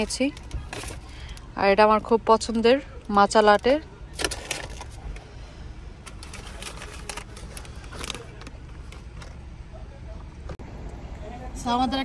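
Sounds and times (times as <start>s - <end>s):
paper bag rustling: 3.4s - 5.2s, 6.0s - 9.4s.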